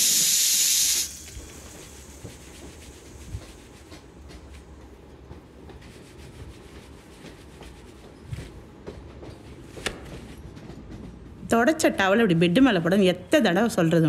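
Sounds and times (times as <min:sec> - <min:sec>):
towel rubbing wet hair: 0:01.8 - 0:04.6, 0:05.8 - 0:08.6.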